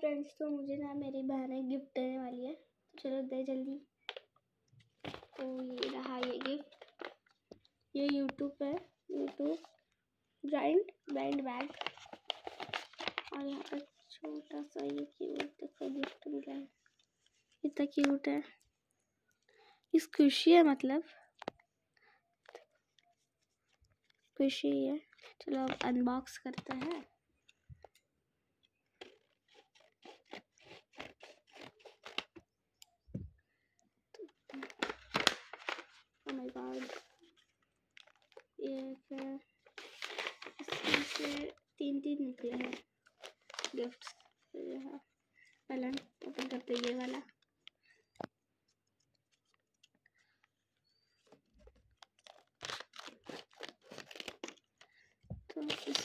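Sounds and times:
scissors cutting paper: 5.1 - 7.2, 11.3 - 16.4, 29.0 - 32.4, 38.0 - 41.5, 45.8 - 47.2, 52.0 - 54.7
scissors snipping paper: 29.0 - 32.4, 45.8 - 47.2, 52.0 - 54.7.

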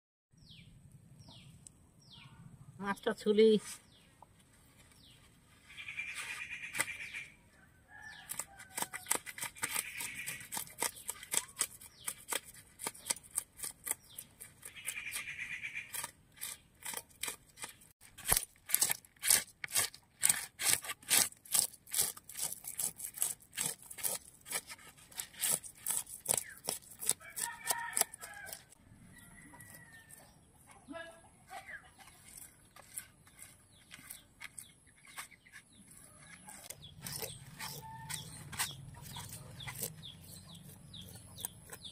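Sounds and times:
knife scraping fish scales: 8.1 - 28.8, 32.0 - 41.9
chicken clucking: 35.4 - 41.9.

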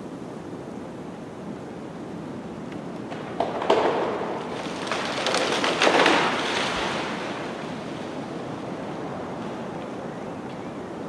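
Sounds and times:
steady rain: 0.0 - 11.0
crackly surge: 3.0 - 10.0.

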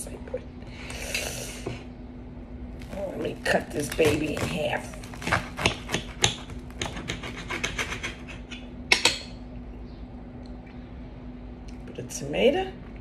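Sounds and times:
knife sawing through bread: 3.8 - 8.4.

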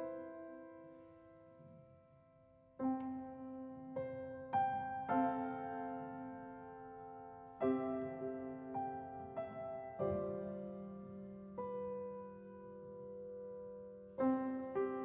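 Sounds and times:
soft piano chords: 0.0 - 15.0.

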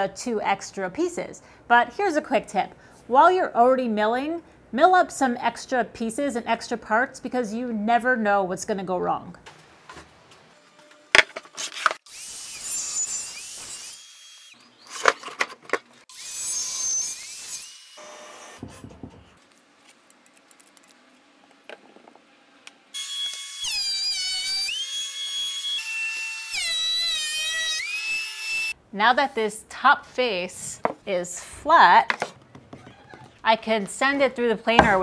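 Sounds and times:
miter saw blade whining: 22.9 - 28.8.

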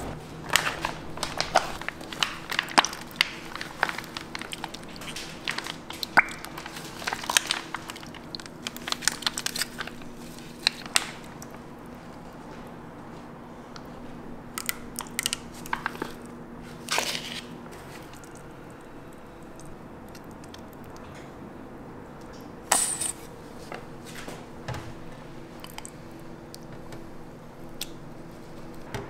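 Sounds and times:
low hum: 0.0 - 6.6.

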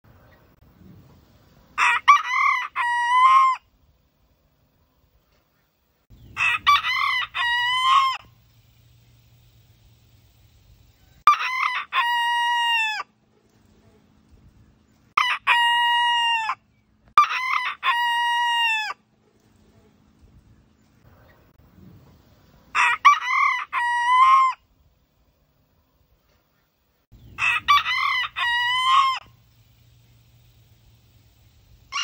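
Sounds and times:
rooster crowing: 1.8 - 3.7, 6.4 - 8.3, 11.0 - 13.1, 15.2 - 16.6, 17.2 - 19.0, 22.7 - 24.6, 27.3 - 29.4.

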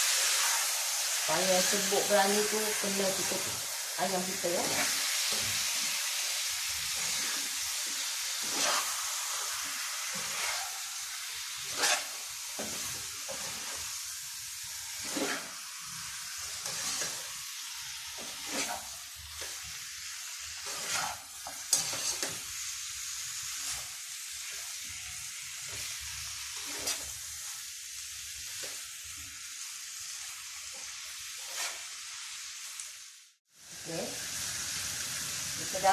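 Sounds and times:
food sizzling in a wok: 0.0 - 35.9
fork scraping a pan: 6.9 - 14.0, 14.7 - 15.7, 16.3 - 17.4, 18.1 - 19.7, 20.4 - 22.5, 23.5 - 25.0, 25.6 - 27.6, 30.7 - 32.0.

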